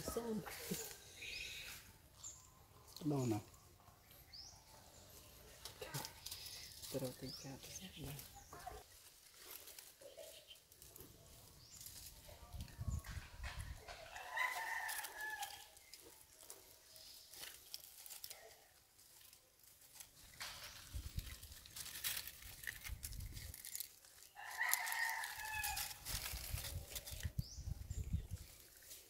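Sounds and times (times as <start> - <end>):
light crackling and rustling: 5.4 - 29.0
rooster crowing: 14.1 - 15.6.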